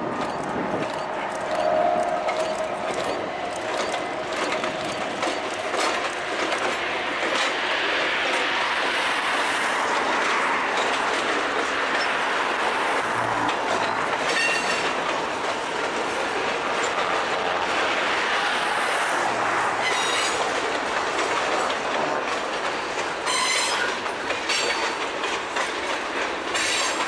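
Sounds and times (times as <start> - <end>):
train wheels clacking on rail joints: 0.0 - 27.0
high wheel squeal: 0.2 - 5.5, 14.3 - 14.9, 19.8 - 20.4, 23.2 - 24.9.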